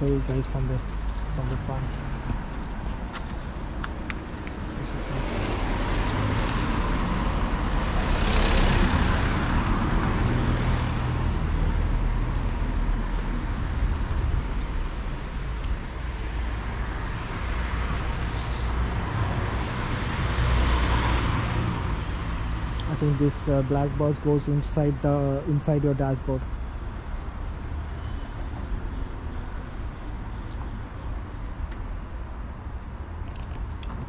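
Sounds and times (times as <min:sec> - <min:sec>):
low traffic rumble: 0:00.0 - 0:34.0
tyres hissing on wet road: 0:18.2 - 0:19.1.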